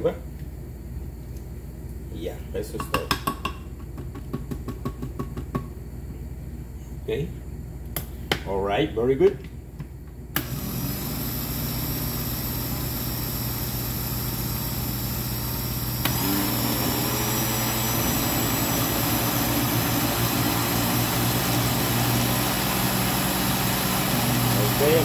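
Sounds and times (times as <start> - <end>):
blender click: 10.4 - 11.2, 15.9 - 24.8
blender motor running: 10.4 - 25.0.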